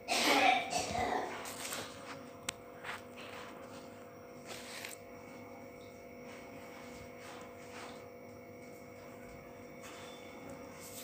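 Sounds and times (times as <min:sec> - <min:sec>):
faint electrical hum: 0:00.0 - 0:11.0.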